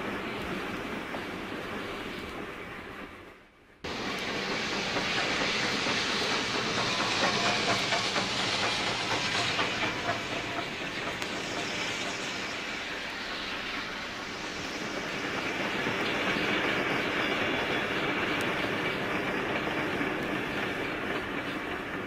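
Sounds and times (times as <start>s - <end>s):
steam locomotive hissing: 0.0s - 22.0s
wheels clicking over rails: 3.9s - 12.6s.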